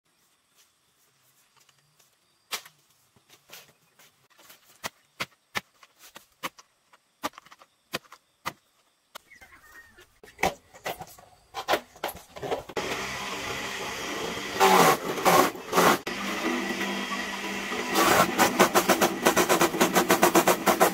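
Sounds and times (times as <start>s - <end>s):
shredder grinding: 12.4s - 20.9s
feed shredder motor running: 12.6s - 20.9s
blade chopping plant stems: 17.9s - 20.9s.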